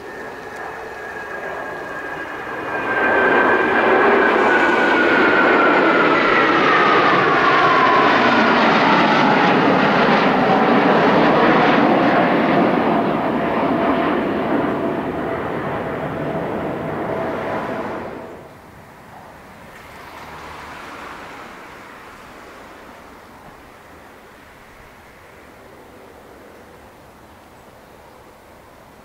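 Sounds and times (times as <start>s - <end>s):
high whine falling in pitch: 0.0s - 18.6s
jet fighters flying over: 0.0s - 27.5s.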